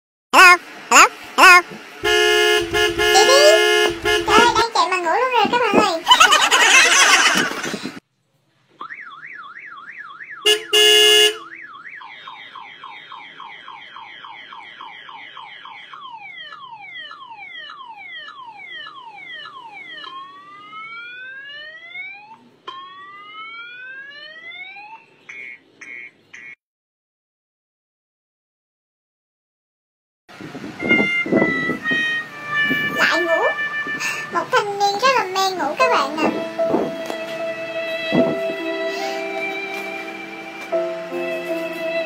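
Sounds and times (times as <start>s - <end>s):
car alarm siren: 2.0s - 4.6s, 8.8s - 26.6s, 30.7s - 34.4s
loud horn-like blast: 2.0s - 4.6s, 10.5s - 11.4s.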